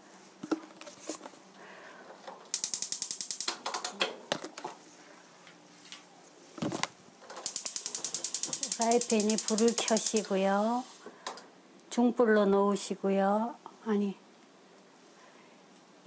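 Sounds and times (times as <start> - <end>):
gas igniter clicking rapidly: 2.5 - 4.0, 7.3 - 10.4.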